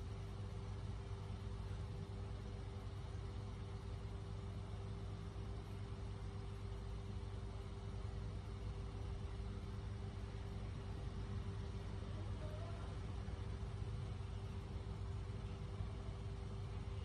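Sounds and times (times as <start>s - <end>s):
low mechanical hum: 0.0s - 17.0s
constant higher tone: 10.1s - 17.0s.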